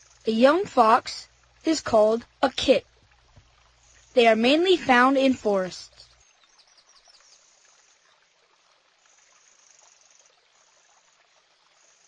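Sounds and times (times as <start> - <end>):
faint insect chirring: 0.0 - 0.5, 2.8 - 4.4, 5.8 - 8.3, 8.9 - 12.0.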